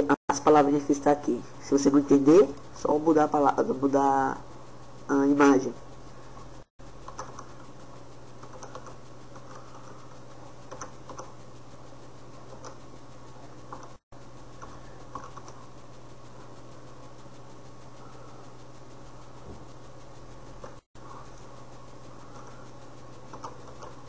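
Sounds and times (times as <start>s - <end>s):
low electrical hum: 0.0s - 24.0s
keyboard typing clicks: 7.0s - 7.5s, 10.7s - 11.3s.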